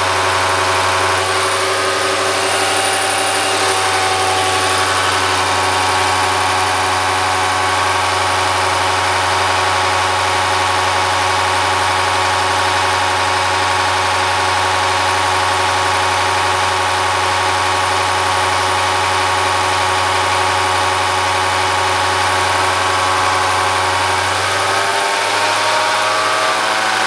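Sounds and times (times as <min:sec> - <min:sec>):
test bench mechanical drone: 0:00.0 - 0:27.0.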